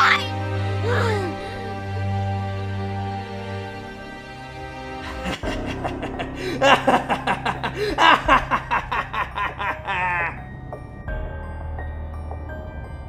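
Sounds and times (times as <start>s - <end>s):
soft background music: 0.0s - 13.0s
person laughing: 5.1s - 10.4s.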